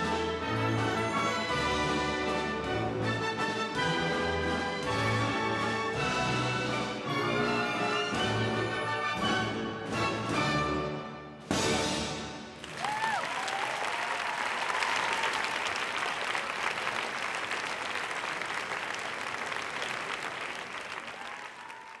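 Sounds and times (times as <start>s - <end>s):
orchestral ballet music: 0.0s - 12.6s
audience applauding: 12.6s - 22.0s.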